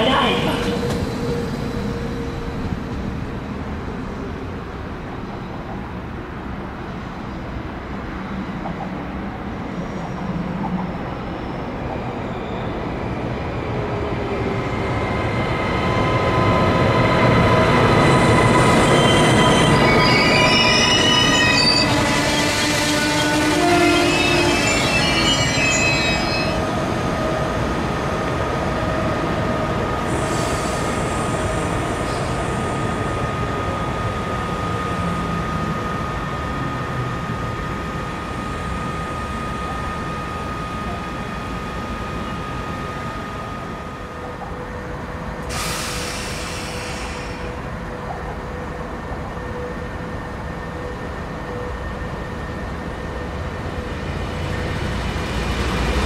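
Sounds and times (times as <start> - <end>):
train moving along tracks: 0.0 - 56.0
high wavering wheel squeal: 18.2 - 26.7.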